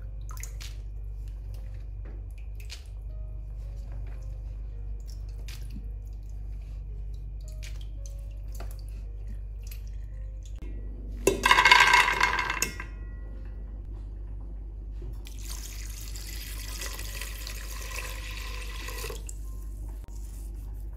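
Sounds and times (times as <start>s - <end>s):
water drips and splashes: 0.0s - 3.1s, 5.0s - 10.6s
peanuts clattering into metal pot: 11.3s - 12.8s.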